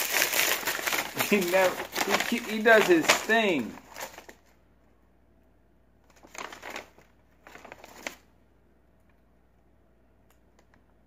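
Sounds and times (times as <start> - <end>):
paper bag rustling: 0.0 - 4.4, 6.1 - 8.3.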